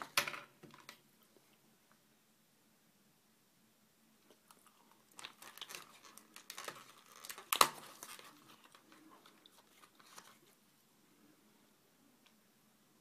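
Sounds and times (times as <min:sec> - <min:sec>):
plastic toy pieces crinkling: 0:05.1 - 0:08.9.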